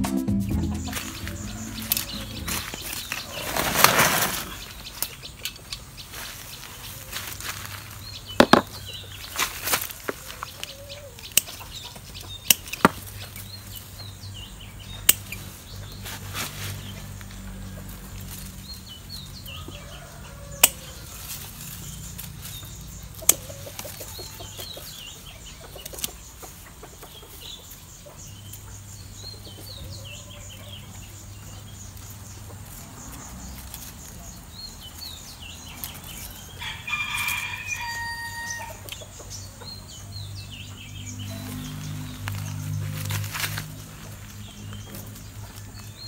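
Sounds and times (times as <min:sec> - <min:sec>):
small birds chirping: 0:00.0 - 0:46.0
rooster crowing: 0:19.5 - 0:21.3, 0:36.6 - 0:38.8.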